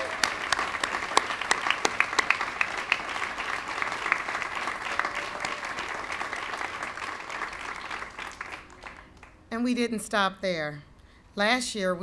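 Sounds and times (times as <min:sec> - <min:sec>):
crowd applauding: 0:00.0 - 0:09.5.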